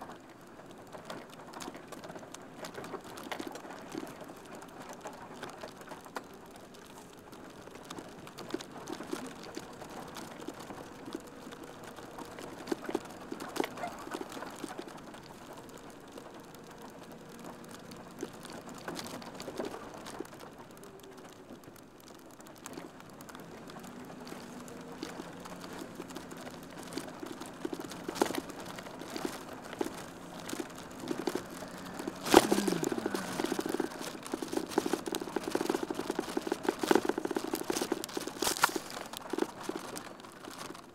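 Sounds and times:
van engine running: 23.4s - 38.6s.

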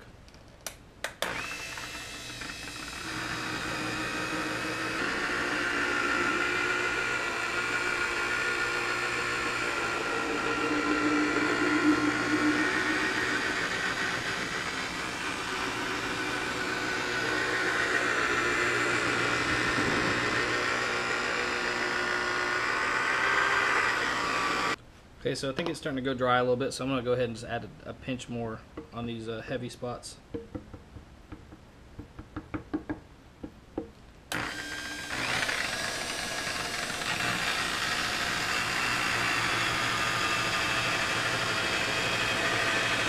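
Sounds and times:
rotary buffer motor whine: 1.2s - 24.8s, 34.3s - 43.0s.

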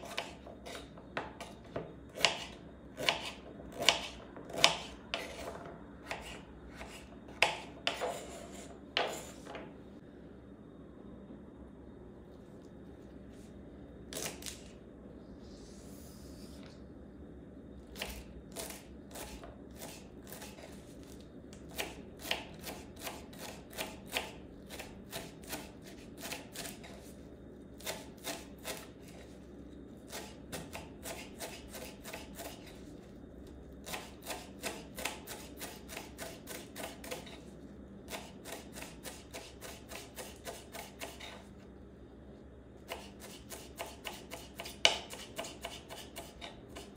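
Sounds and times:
knife chopping on wooden board: 0.0s - 9.3s, 21.7s - 27.0s, 30.1s - 32.7s, 33.8s - 37.3s, 38.1s - 41.4s, 42.9s - 46.9s.

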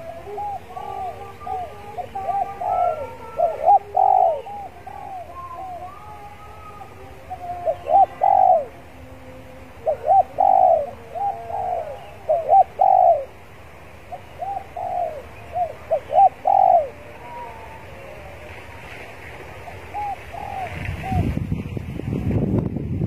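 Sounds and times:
dove cooing: 0.0s - 21.4s.

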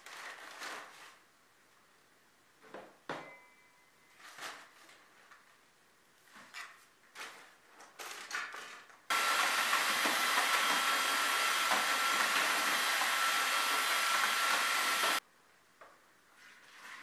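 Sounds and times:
small electric motor running: 9.1s - 15.2s.

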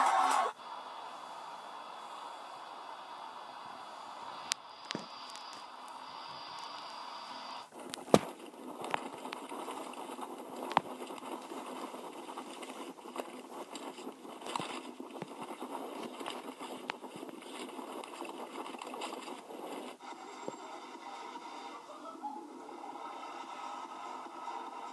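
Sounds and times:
steady hiss: 0.0s - 24.9s
mountain bike rattling on trail: 7.7s - 20.0s.

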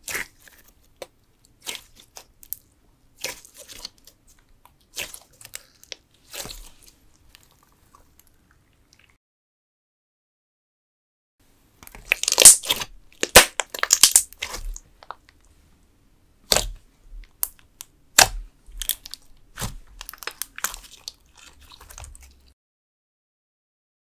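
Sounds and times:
slime crackling and popping: 11.9s - 15.3s, 16.5s - 22.4s.

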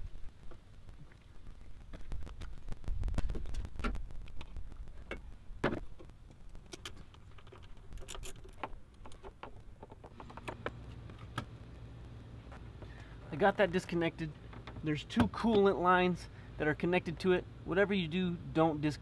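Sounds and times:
small clicks of plastic parts: 3.2s - 11.5s.

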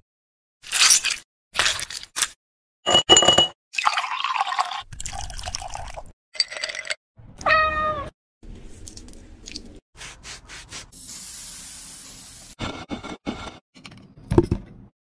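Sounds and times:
cat meowing: 7.4s - 8.1s.

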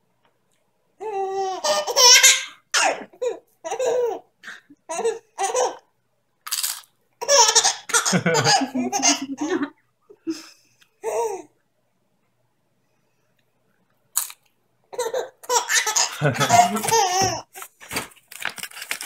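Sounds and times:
baby laughing: 1.0s - 5.9s, 7.2s - 9.8s, 14.9s - 17.5s.

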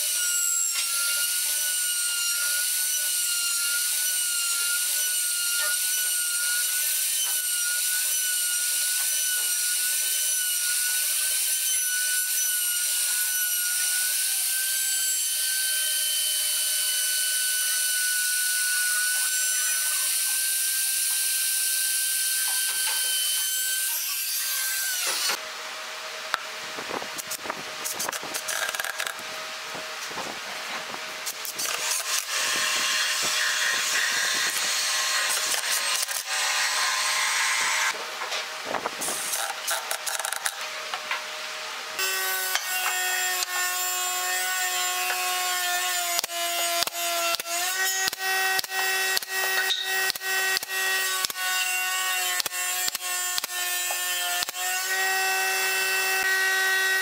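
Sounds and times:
cordless driver driving screws: 27.2s - 29.2s.

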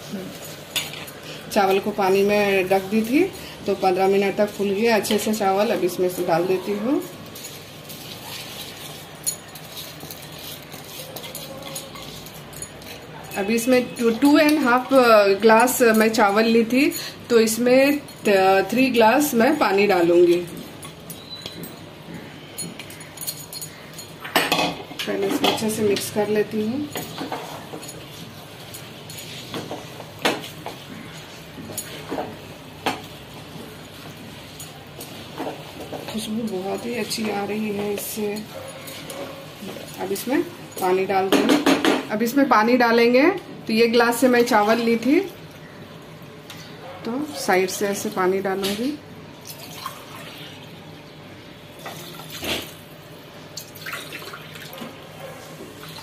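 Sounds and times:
spatula scraping rice in pot: 7.4s - 12.9s
water pouring into a pot: 49.4s - 50.8s, 51.8s - 52.7s, 53.6s - 54.9s.

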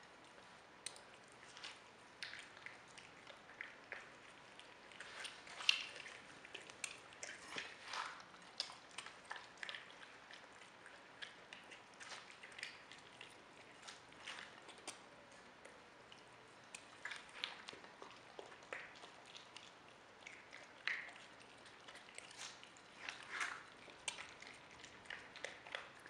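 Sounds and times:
animal chewing watermelon: 0.0s - 26.0s.

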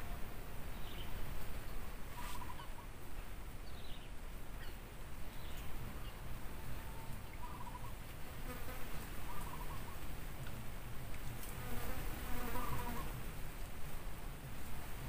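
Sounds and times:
outdoor background: 0.0s - 15.0s
flying insect buzzing: 11.5s - 13.2s.

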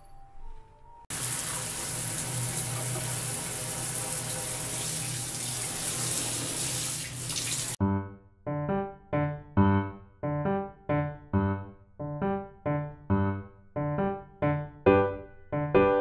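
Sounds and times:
piano music: 0.0s - 6.1s, 7.6s - 16.0s
shower water running into bathtub: 1.1s - 7.8s.

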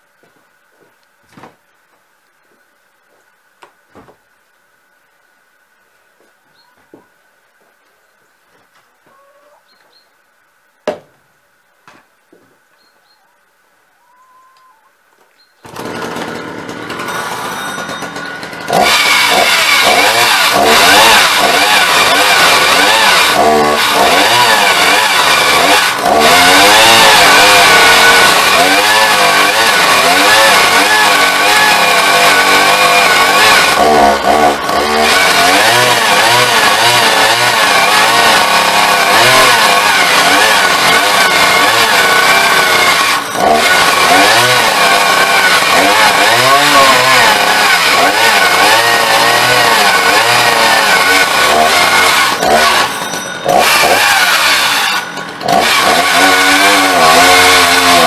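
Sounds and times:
chainsaw cutting log: 15.6s - 58.0s.

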